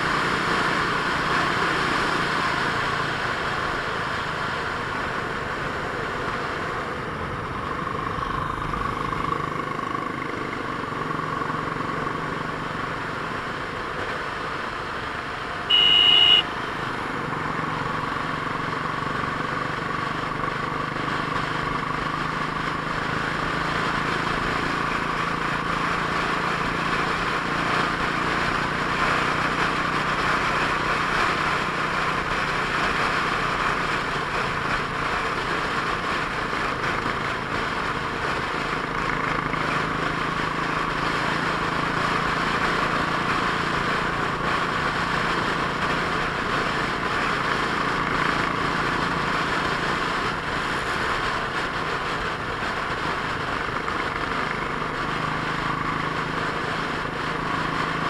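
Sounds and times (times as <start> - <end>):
motorcycle engine hum: 0.0 - 58.0
road noise: 0.0 - 58.0.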